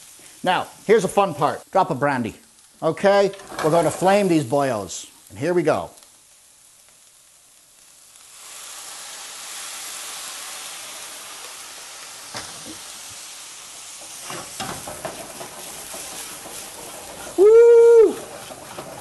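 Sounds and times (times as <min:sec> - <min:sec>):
brandy sizzling in skillet: 0:00.0 - 0:19.0
pan clanking on burner grate: 0:14.0 - 0:17.2.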